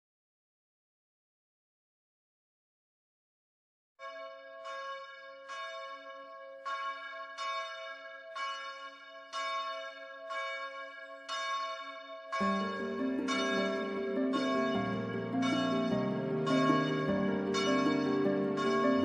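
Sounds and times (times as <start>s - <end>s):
church bell tolling: 4.0s - 19.0s
deeper fuller tone: 12.5s - 19.0s.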